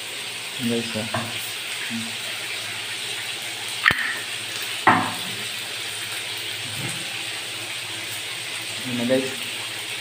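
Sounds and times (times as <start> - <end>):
sharp knocks: 4.9 - 5.3.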